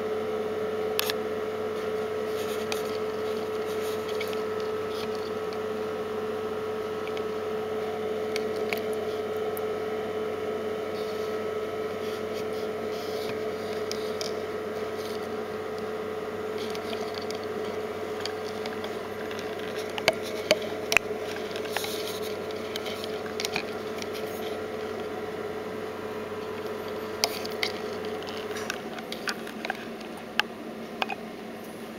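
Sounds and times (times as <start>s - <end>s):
machine hum with held tone: 0.0s - 31.9s
sharp clicks and taps: 18.2s - 24.4s.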